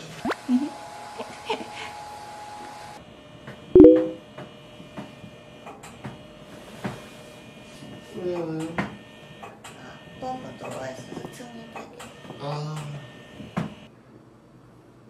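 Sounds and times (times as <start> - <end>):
brief loud pitched sound: 3.8 - 4.2.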